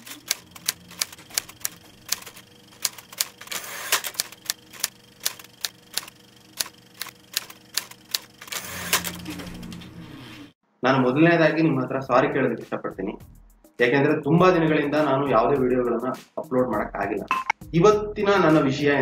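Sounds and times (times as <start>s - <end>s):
typewriter keys clacking: 0.0s - 9.8s
typewriter rasping: 0.0s - 9.8s.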